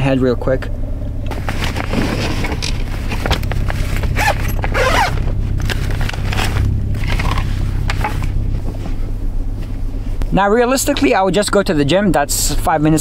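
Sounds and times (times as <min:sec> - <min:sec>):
steady low hum: 0:00.0 - 0:13.0
rustling cloth: 0:01.3 - 0:10.2
zipper: 0:03.6 - 0:07.4.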